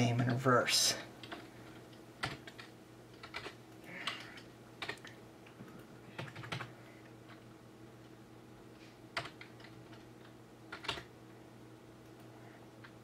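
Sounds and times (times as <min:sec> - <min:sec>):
faint steady hum: 0:00.0 - 0:13.0
keyboard key presses: 0:02.2 - 0:04.2, 0:04.8 - 0:06.7, 0:10.7 - 0:11.1.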